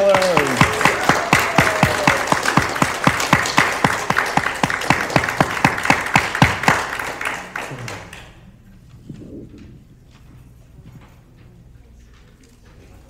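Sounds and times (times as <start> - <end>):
nearby hands clapping: 0.0 - 8.4
audience applauding: 0.0 - 8.5.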